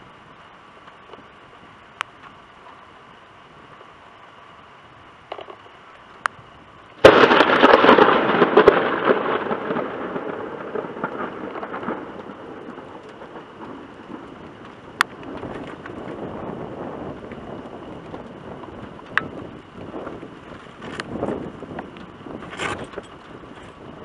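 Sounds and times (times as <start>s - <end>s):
thunderclap with rumble: 7.0s - 24.0s.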